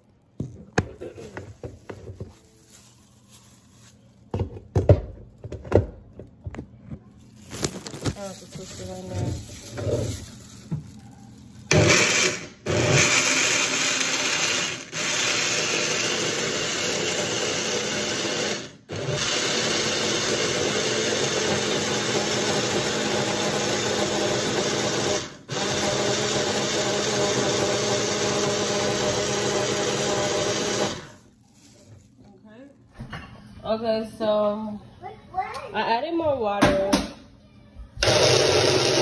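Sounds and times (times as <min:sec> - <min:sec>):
blender motor whirring: 0:11.7 - 0:31.2, 0:38.0 - 0:39.0.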